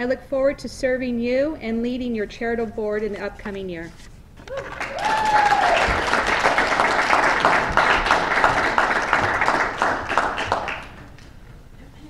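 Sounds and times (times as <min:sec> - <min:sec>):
audience applauding: 0:04.4 - 0:11.4.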